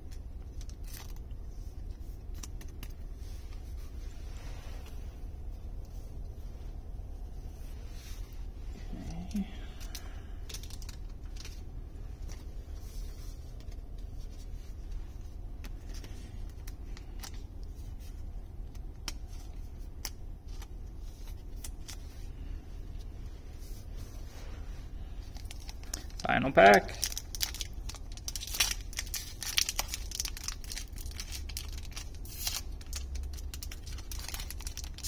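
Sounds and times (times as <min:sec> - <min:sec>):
plastic card sleeve crinkling: 0:00.0 - 0:04.1, 0:08.2 - 0:24.4, 0:25.0 - 0:35.0
low hum: 0:00.0 - 0:26.3.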